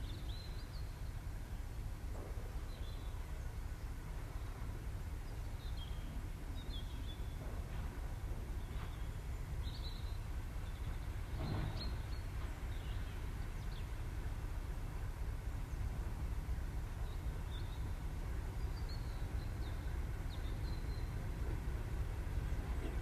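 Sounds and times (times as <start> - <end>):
small birds chirping: 8.6 - 14.1, 16.9 - 21.4.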